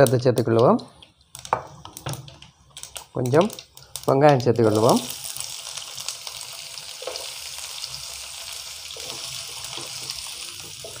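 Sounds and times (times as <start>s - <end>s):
onion frying in oil: 0.0s - 11.0s.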